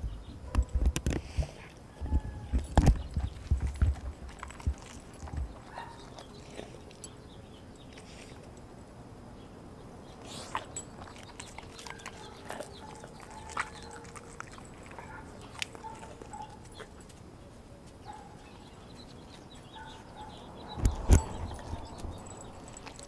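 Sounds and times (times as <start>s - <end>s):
dog chewing raw meat: 2.5s - 7.3s, 10.2s - 17.2s, 20.9s - 23.0s.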